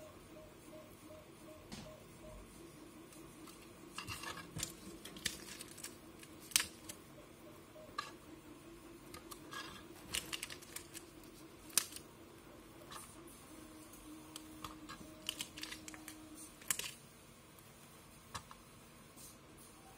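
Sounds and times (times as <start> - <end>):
faint steady hum: 0.0 - 19.9.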